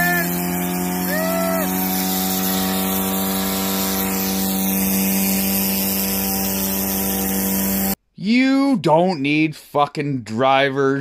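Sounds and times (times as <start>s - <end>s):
engine at high revs: 0.0s - 8.0s.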